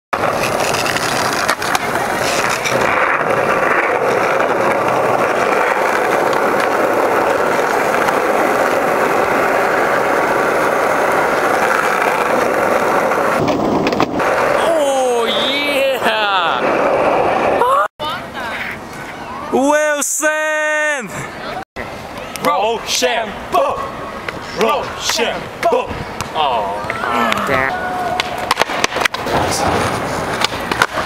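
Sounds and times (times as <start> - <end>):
skateboard clacks: 0.2 - 14.6, 25.0 - 31.0
skateboard wheels rolling on asphalt: 0.2 - 19.5, 20.5 - 31.0.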